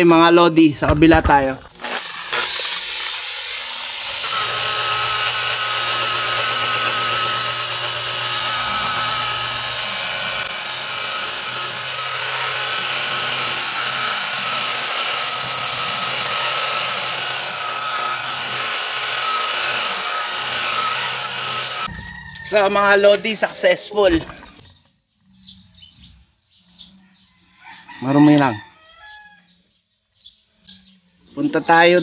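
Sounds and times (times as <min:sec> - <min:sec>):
electric polisher motor whine: 0:01.8 - 0:21.9.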